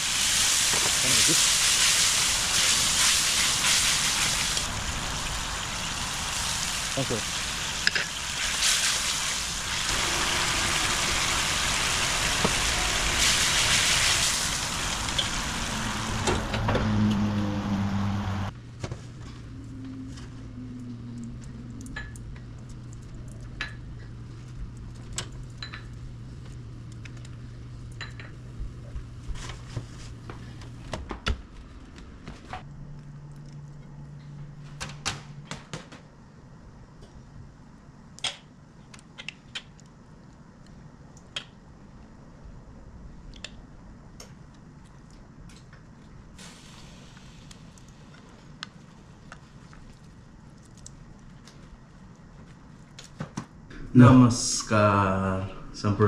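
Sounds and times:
loud steady hiss: 0.0s - 16.6s, 46.3s - 48.2s
low steady hum: 4.0s - 31.0s.

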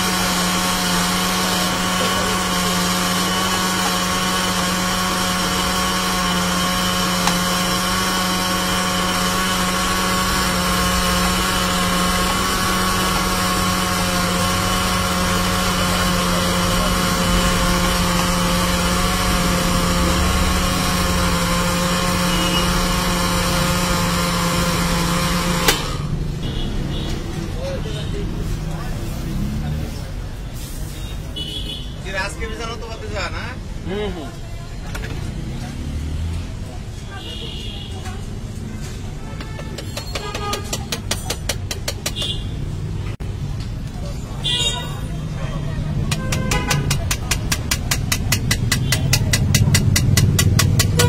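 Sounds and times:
blender motor running: 0.0s - 27.1s, 46.1s - 51.0s.

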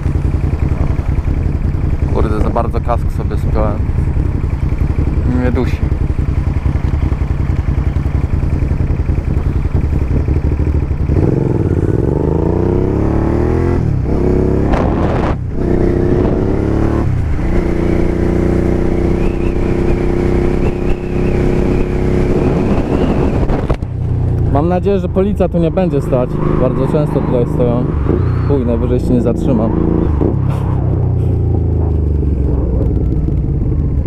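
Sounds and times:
motorcycle engine idling: 0.0s - 13.0s, 22.0s - 26.4s, 30.4s - 34.0s
motorcycle revving through gears: 0.0s - 34.0s.

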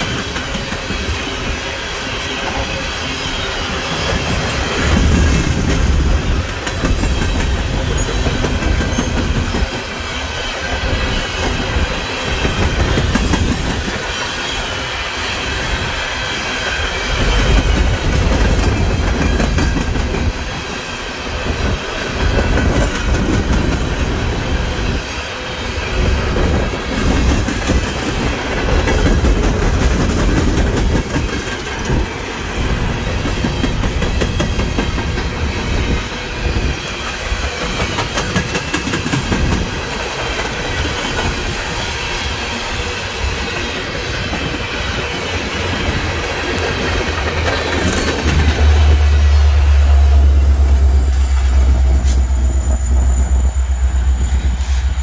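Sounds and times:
steel wheels rumbling on rail: 0.0s - 55.0s
wheels clacking over rail joints: 3.6s - 14.9s, 16.4s - 20.8s, 26.1s - 52.8s.

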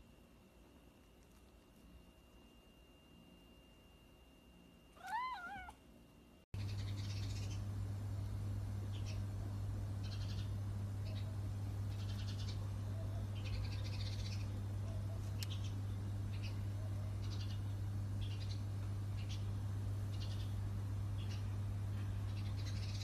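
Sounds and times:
steady low hum: 0.0s - 23.0s
short high-pitched animal calls: 5.0s - 5.8s.

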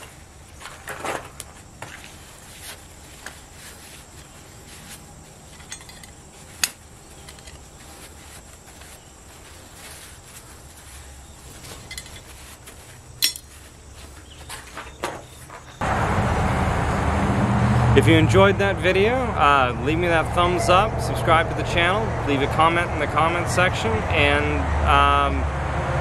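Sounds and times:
faint background noise: 0.0s - 15.8s
metallic clinks on anvil: 5.5s - 6.2s, 11.8s - 12.3s, 13.2s - 13.5s.

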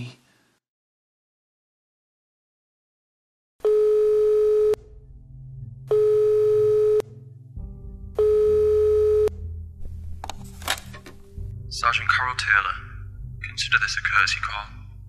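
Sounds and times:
telephone ringing beeps: 3.6s - 4.8s, 5.9s - 7.0s, 8.2s - 9.3s.

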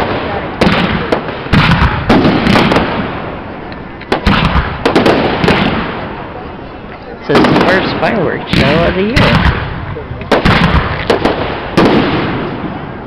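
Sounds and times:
fireworks bangs: 0.0s - 6.6s, 7.2s - 13.0s
fireworks crackle: 0.0s - 13.0s.

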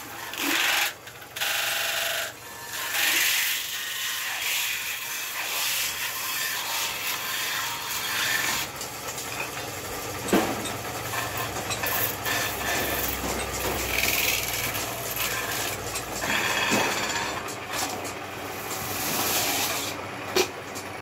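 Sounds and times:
tool scraping spinning metal: 0.0s - 20.0s
lathe machine hum: 5.6s - 21.0s.

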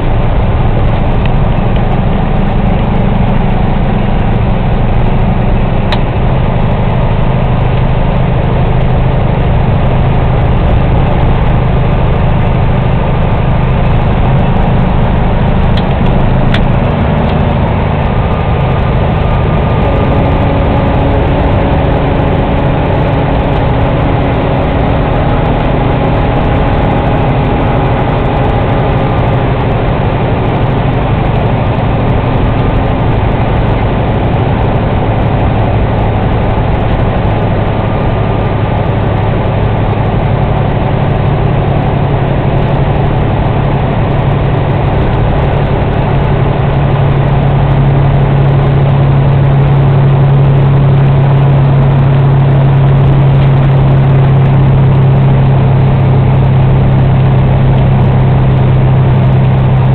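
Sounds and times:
road noise: 0.0s - 59.9s
truck diesel engine running: 0.0s - 59.9s.

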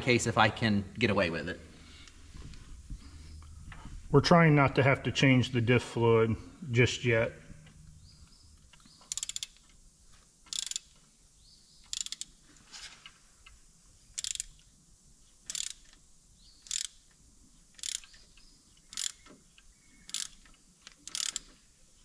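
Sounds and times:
ratchet wrench clicking: 9.1s - 9.8s, 10.5s - 11.0s, 11.9s - 12.4s, 14.1s - 14.7s, 15.4s - 16.0s, 16.6s - 18.2s, 18.8s - 19.3s, 20.1s - 21.5s.

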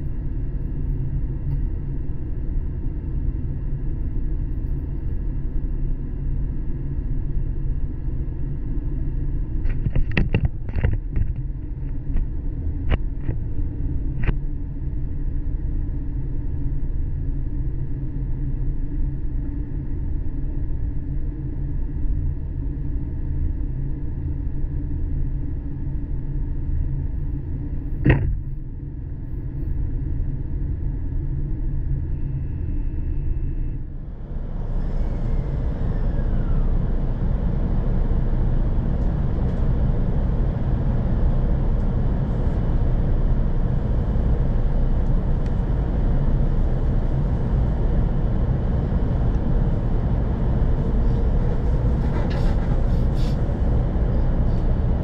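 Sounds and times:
train cabin low hum: 0.0s - 55.0s
loud knock: 28.0s - 28.5s.

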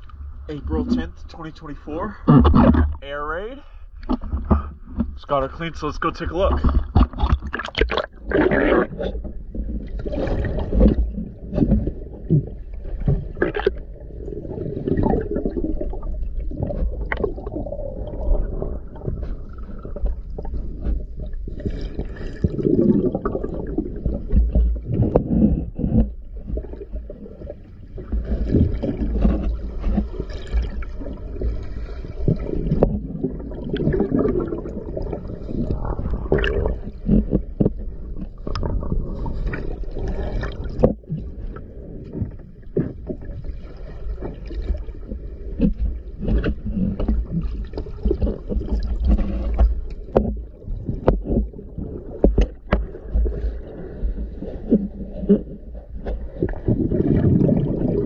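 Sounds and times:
dive gear clicks and knocks: 2.2s - 3.1s, 4.0s - 5.2s, 6.4s - 8.2s, 35.7s - 38.9s, 45.2s - 53.5s
bubbling exhalations underwater: 6.5s - 20.6s, 21.6s - 25.9s, 32.1s - 37.5s, 56.3s - 58.0s.

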